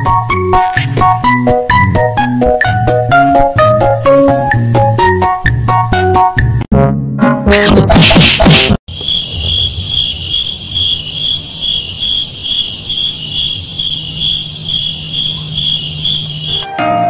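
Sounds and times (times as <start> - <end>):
insect chirping: 8.9 - 16.6.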